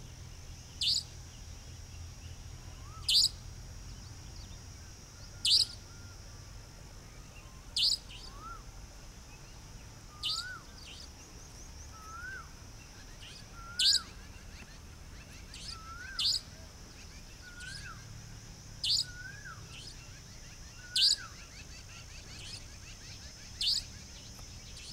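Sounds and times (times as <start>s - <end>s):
bird sharp high call: 2.8s - 3.4s, 5.3s - 6.1s, 10.1s - 10.6s, 13.5s - 14.2s, 15.5s - 16.6s
low rising and falling bird notes: 9.3s - 24.9s.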